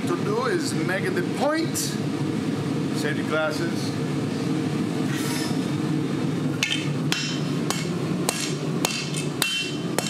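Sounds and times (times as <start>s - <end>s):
steady low hum: 0.0s - 10.0s
hammer striking metal on anvil: 6.6s - 10.0s.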